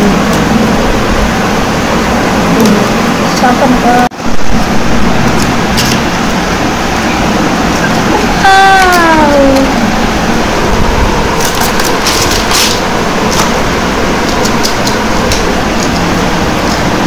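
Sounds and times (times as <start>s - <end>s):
loud rushing noise: 4.0s - 17.0s.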